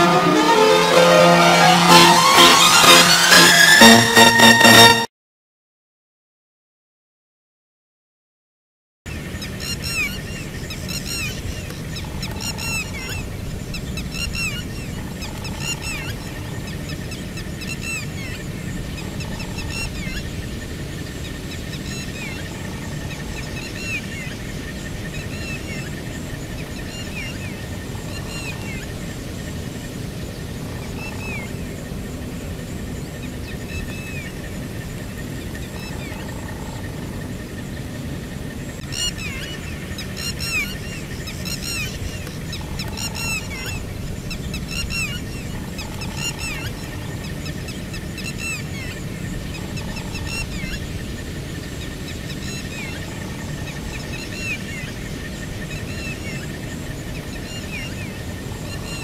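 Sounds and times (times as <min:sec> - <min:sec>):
thin high tone: 0:00.0 - 0:05.1
birds calling: 0:38.6 - 0:59.0.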